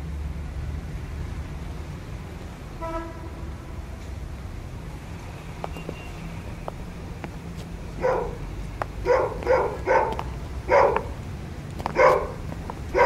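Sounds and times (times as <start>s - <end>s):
dog barking: 8.0s - 8.4s, 9.0s - 11.2s, 11.9s - 13.0s.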